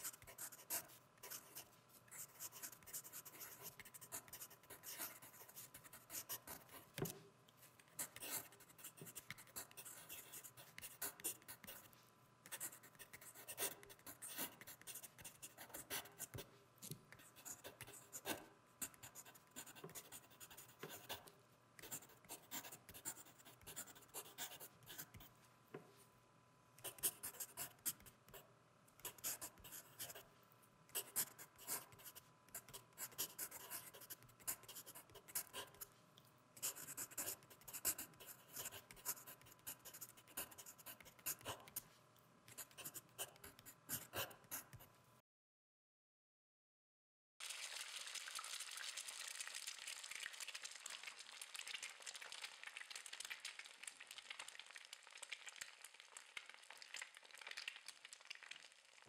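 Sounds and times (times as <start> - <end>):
pen scratching on paper: 0.0 - 7.1, 8.0 - 11.9, 12.5 - 16.4, 17.2 - 25.2, 31.0 - 35.8, 36.6 - 41.8.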